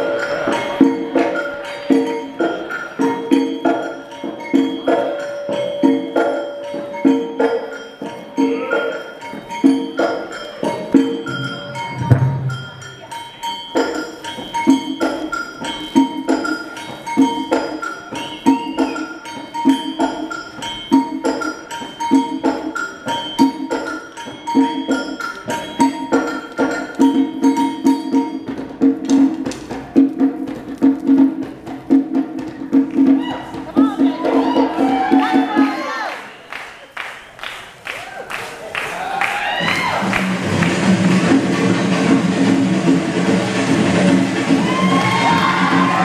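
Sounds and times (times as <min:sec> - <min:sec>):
conga drum played by hand: 0:26.9 - 0:35.9.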